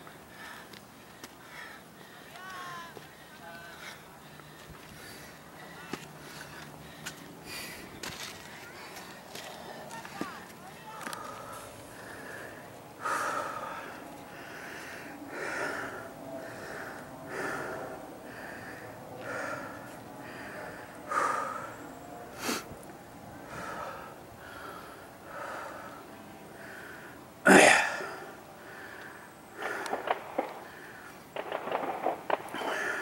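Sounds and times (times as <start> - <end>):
person panting hard: 0.0 - 2.4, 3.0 - 7.9, 11.0 - 21.8, 23.4 - 26.0, 32.6 - 33.0
loud burst: 29.6 - 30.8, 31.4 - 33.0.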